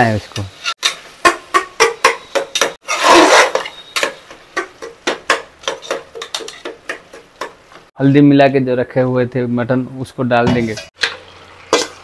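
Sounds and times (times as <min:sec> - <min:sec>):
spatula scraping a pressure cooker: 0:02.2 - 0:04.2.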